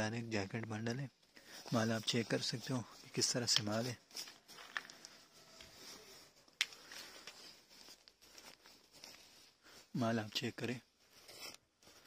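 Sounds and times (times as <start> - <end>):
rustling of nylon and plastic: 1.2 - 12.0.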